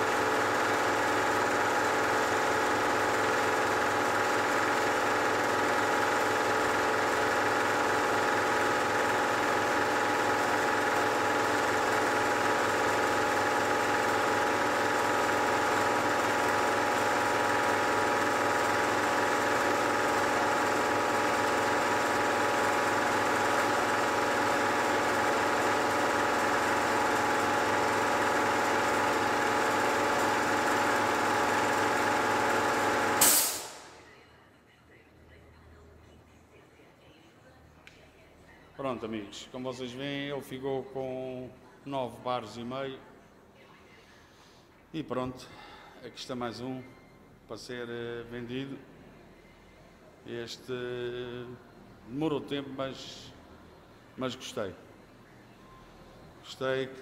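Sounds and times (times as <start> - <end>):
air compressor running: 0.0 - 34.1.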